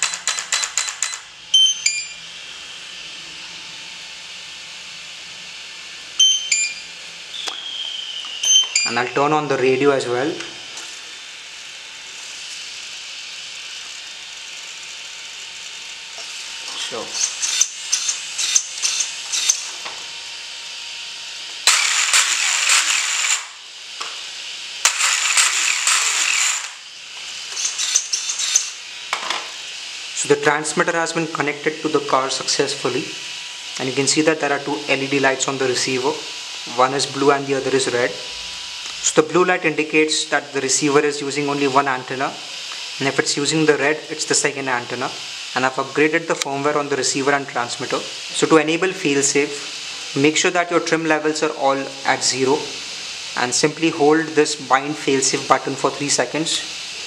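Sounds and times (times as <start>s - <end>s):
short clicky electronic tones: 0.0s - 2.2s, 8.4s - 9.0s
two-note electronic beeps: 1.6s - 2.2s, 6.2s - 9.0s
faint high whine: 5.2s - 11.2s
rc truck motor spinning up: 17.2s - 19.7s, 21.6s - 23.7s, 24.8s - 28.9s.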